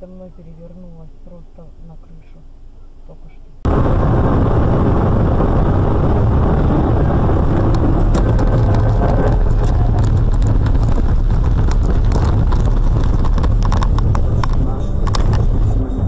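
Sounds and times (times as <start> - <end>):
car cabin rumble: 0.0 - 16.0
car rattling on rough ground: 3.7 - 16.0.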